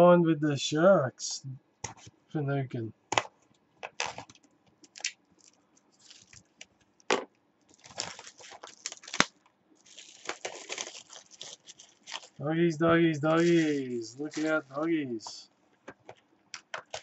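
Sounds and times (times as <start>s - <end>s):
wrappers and cardboard rustling: 3.8s - 6.8s, 7.7s - 15.4s, 16.8s - 17.0s.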